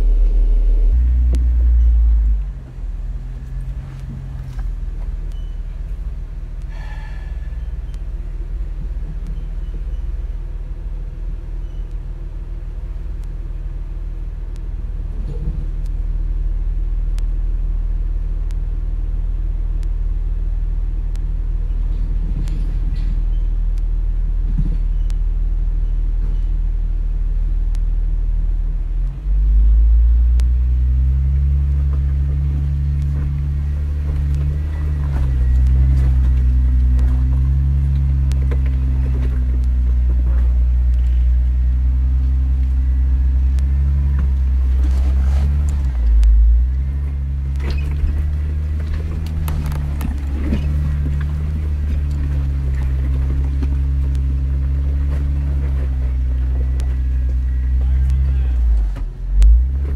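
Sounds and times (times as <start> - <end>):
off-road vehicle engine rumbling: 0.0 - 59.9.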